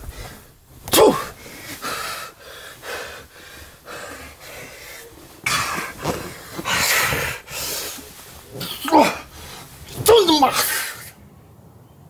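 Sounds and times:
person breathing hard: 0.0s - 10.0s.

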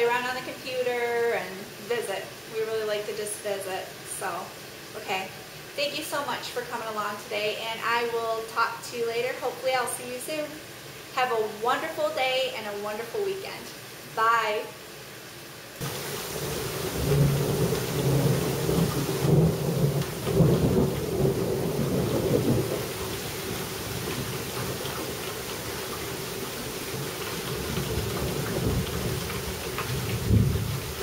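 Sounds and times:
heavy rain falling: 15.8s - 31.0s
thunder rumbling: 15.8s - 31.0s.

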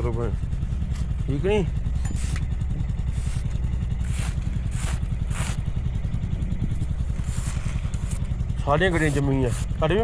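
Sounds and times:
motorcycle engine idling: 0.0s - 10.0s
fingertip scraping frost: 3.1s - 5.8s, 6.8s - 9.9s.

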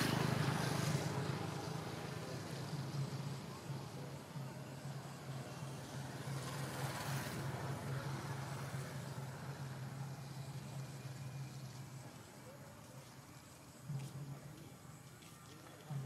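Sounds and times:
vehicle going by: 0.0s - 12.1s
engine running with low hum: 0.0s - 16.0s.

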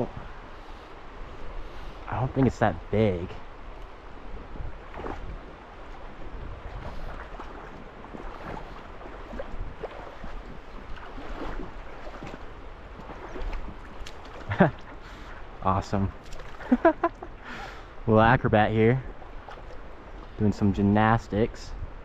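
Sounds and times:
river current lapping: 0.0s - 20.6s
small water splashes: 4.7s - 17.3s, 19.0s - 20.4s.

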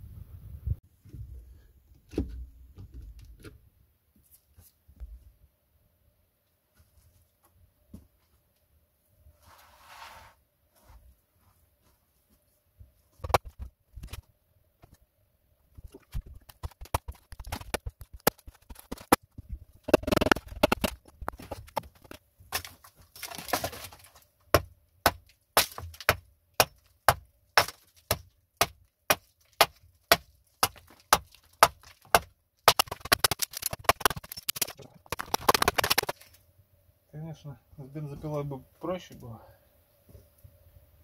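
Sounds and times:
wood splintering: 15.9s - 19.2s, 19.8s - 36.3s
axe chopping log: 24.5s - 36.2s.

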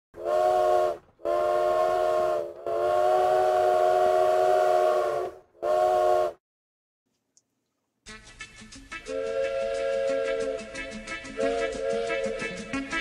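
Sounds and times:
chime steam whistle blasts: 0.2s - 6.4s, 9.0s - 12.8s.

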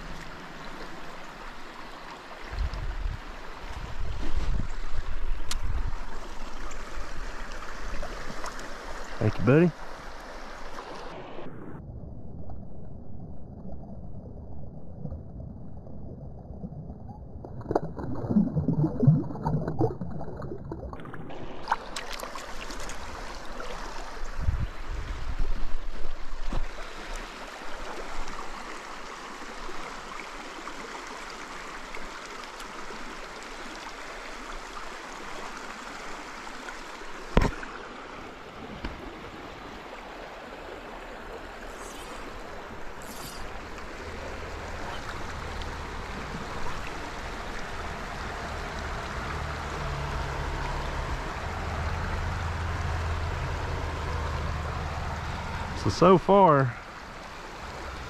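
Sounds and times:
stream water rushing: 0.0s - 11.8s, 20.9s - 58.0s
water sloshing: 17.4s - 25.2s.

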